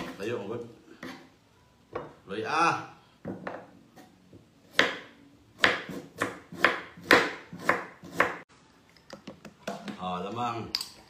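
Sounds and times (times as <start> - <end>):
knife chopping on cutting board: 4.7 - 8.4.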